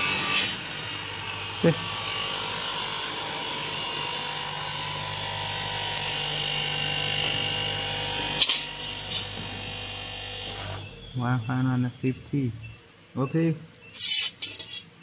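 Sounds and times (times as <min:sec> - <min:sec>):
glass edge grinding machine: 0:00.0 - 0:10.8.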